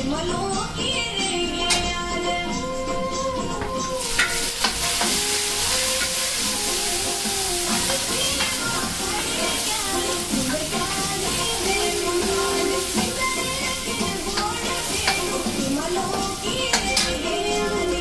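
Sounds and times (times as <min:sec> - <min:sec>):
background music: 0:00.0 - 0:18.0
ladle scraping pan: 0:04.0 - 0:18.0
vegetables sizzling in hot oil: 0:04.0 - 0:18.0.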